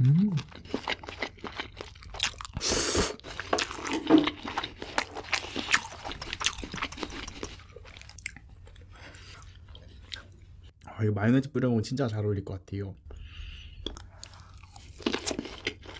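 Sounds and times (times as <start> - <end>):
wet crunchy chewing: 0.0 - 10.4.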